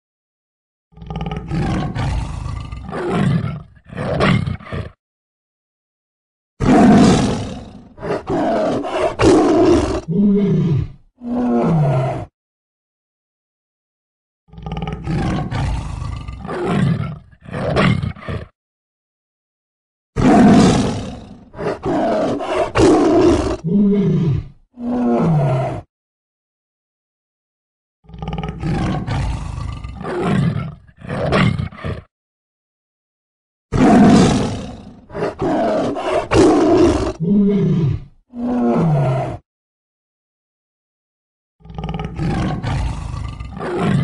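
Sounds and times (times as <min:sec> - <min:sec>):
tiger roaring and snarling: 0:00.9 - 0:05.0, 0:06.6 - 0:12.3, 0:14.5 - 0:18.6, 0:20.2 - 0:25.9, 0:28.0 - 0:32.1, 0:33.7 - 0:39.4, 0:41.6 - 0:44.0.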